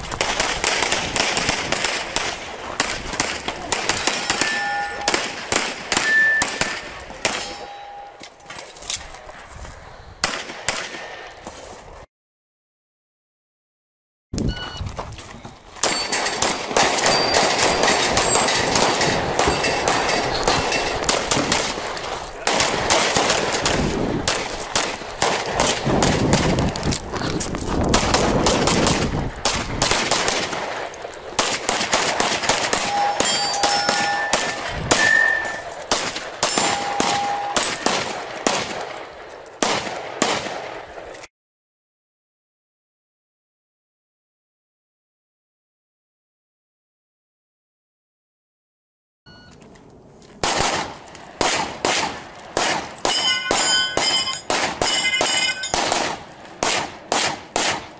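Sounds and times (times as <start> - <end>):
rapid handgun fire: 0.2 - 7.5, 15.8 - 26.6, 27.9 - 39.0, 39.6 - 40.8, 50.4 - 57.9
steel targets ringing: 3.6 - 8.5, 15.8 - 16.4, 17.0 - 21.1, 32.7 - 35.8, 36.4 - 37.9, 53.0 - 55.9.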